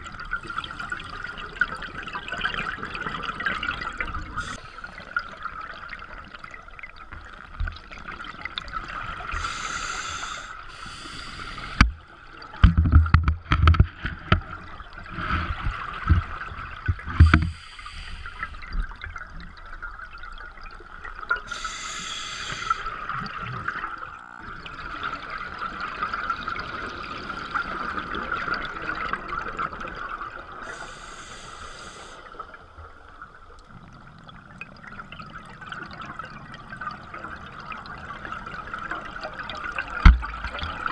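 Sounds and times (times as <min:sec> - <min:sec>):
bubbling and gurgling: 0:00.0 - 0:31.4, 0:32.0 - 0:40.9
regulator breathing hiss: 0:04.4 - 0:04.9, 0:09.3 - 0:11.8, 0:17.3 - 0:18.8, 0:21.5 - 0:23.0, 0:30.7 - 0:32.3.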